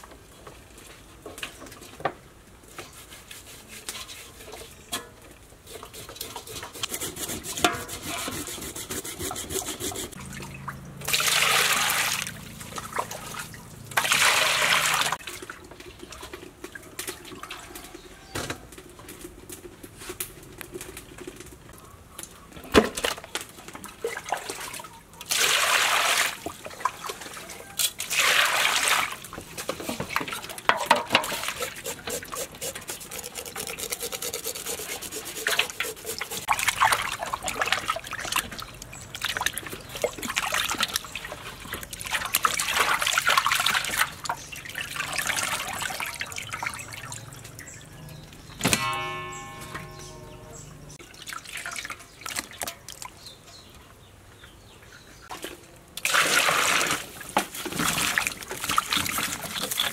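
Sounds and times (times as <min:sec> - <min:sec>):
water splashing in a metal basin: 0:09.3 - 0:18.0, 0:22.8 - 0:53.4, 0:55.3 - 0:59.9
water trickling and dripping: 0:35.5 - 0:53.7.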